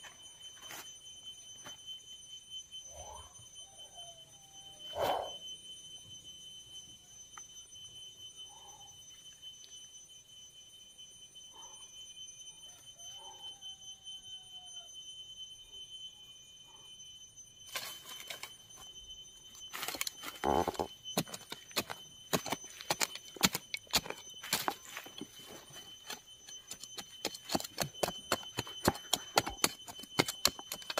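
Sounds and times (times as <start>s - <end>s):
high-pitched insect drone: 0.0s - 30.9s
shovel digging into soil: 19.7s - 30.9s.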